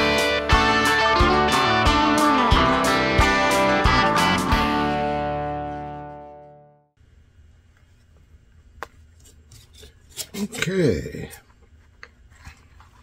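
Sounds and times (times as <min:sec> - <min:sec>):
guitar music: 0:00.0 - 0:06.9.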